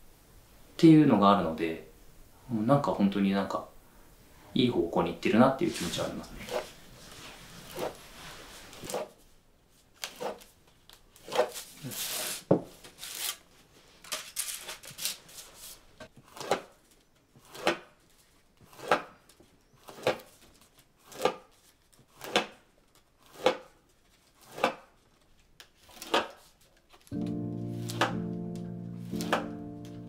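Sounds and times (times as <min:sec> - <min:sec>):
knife snicking through bamboo: 0:24.4 - 0:24.8.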